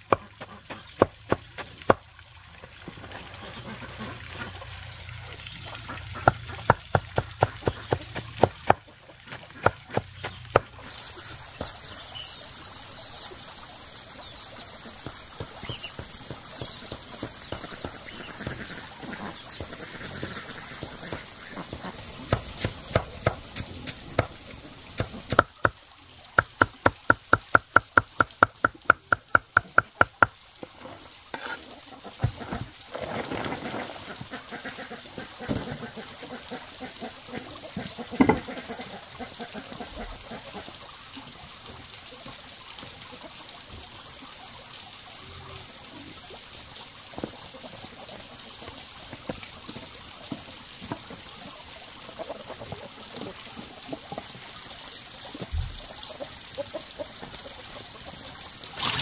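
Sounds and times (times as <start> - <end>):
cleaver chopping leafy greens: 0.0 - 2.0, 6.2 - 10.8, 22.3 - 24.3.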